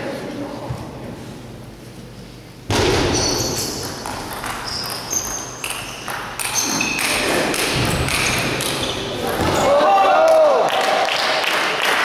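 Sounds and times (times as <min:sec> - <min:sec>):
shoes squeaking on floor: 0:03.0 - 0:09.6.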